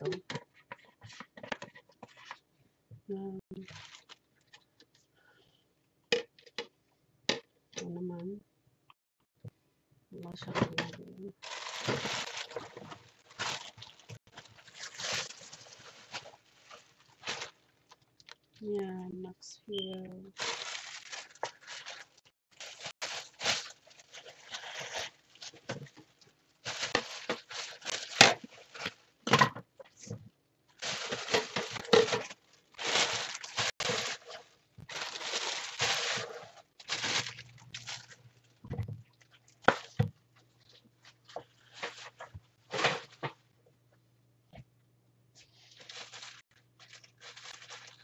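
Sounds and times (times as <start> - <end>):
plastic bag crinkling: 3.6 - 4.6, 10.5 - 18.6, 20.1 - 29.2, 30.8 - 38.7, 45.5 - 48.0.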